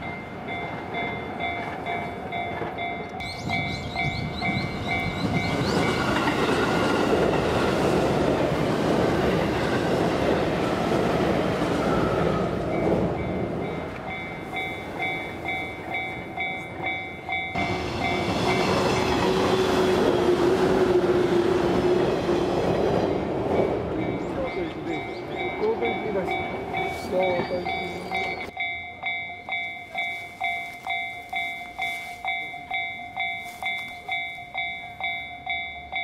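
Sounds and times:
steady train whine: 0.0s - 36.0s
train rumbling past: 0.0s - 36.0s
level crossing bell ringing: 12.8s - 19.0s, 23.6s - 36.0s.

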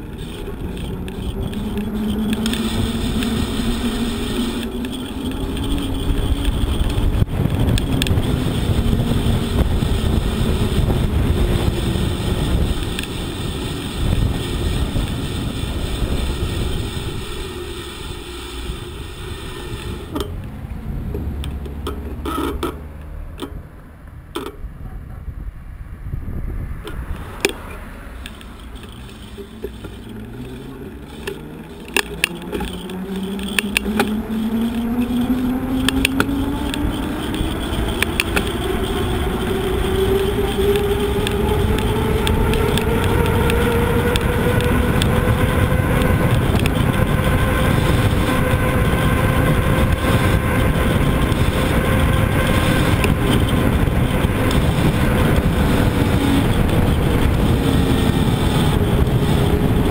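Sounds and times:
vehicle whine rising in pitch: 0.0s - 24.6s, 25.8s - 59.9s
wind and road noise: 0.0s - 59.9s
sharp clicks: 26.8s - 47.1s.

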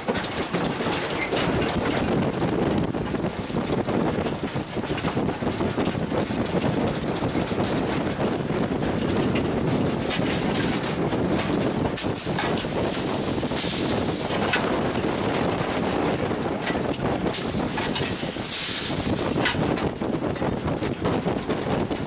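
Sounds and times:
steam train rumbling: 0.0s - 22.0s
wind buffeting microphone: 0.0s - 22.0s
steam hiss: 12.0s - 14.4s, 17.3s - 19.4s.

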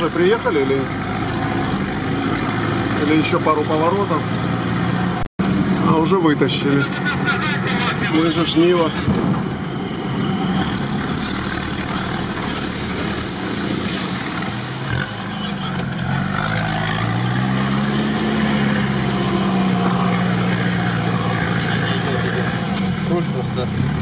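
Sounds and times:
vehicle engine under load: 0.0s - 24.0s
steady wash of water noise: 12.3s - 14.9s.

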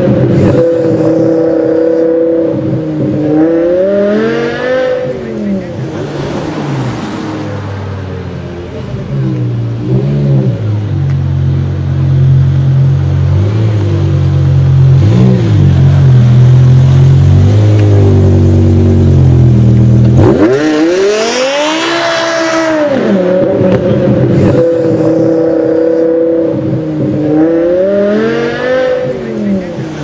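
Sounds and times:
car engine revving: 0.0s - 30.0s.

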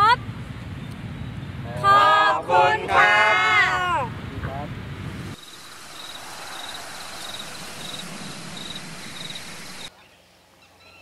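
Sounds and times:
crickets chirping: 5.2s - 9.9s
hiss of insect noise: 5.2s - 9.9s.

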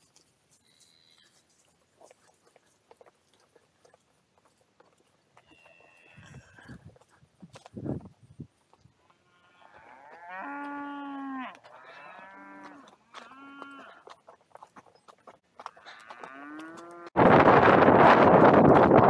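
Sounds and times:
wind buffeting microphone: 6.2s - 9.0s, 17.2s - 19.0s
cattle mooing: 9.3s - 14.0s, 15.7s - 17.1s.

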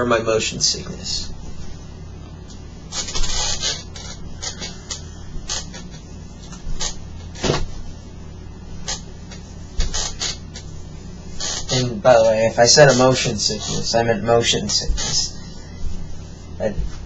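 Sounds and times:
steady low hum: 0.0s - 17.0s
swivel chair creaking: 11.3s - 15.4s.

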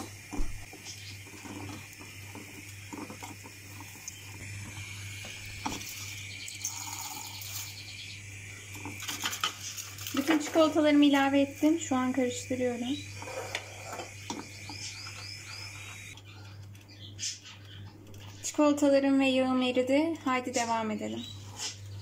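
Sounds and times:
steady low hum: 0.0s - 22.0s
spatula scraping a saucepan: 13.1s - 14.9s.

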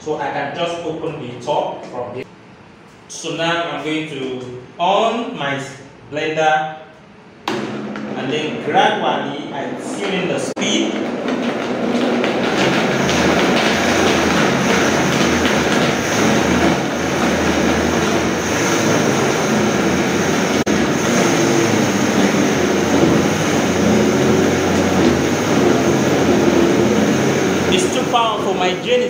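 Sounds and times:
blender grinding nuts in water: 10.6s - 29.0s.

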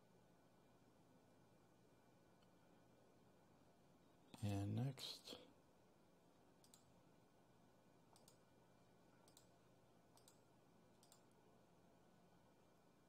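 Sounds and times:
computer mouse clicks: 6.6s - 6.9s, 8.1s - 8.5s, 9.2s - 11.3s.

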